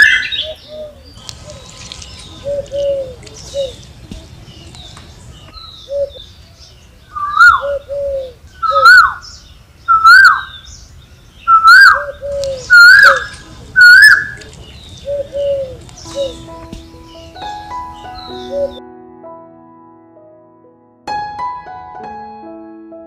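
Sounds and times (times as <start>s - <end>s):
bird calling: 0.0s - 18.8s
music: 16.0s - 23.0s.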